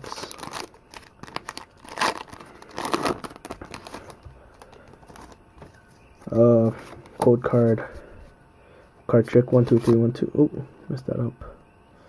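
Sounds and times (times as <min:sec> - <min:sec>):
foil wrapper tearing and crinkling: 0:00.0 - 0:05.4.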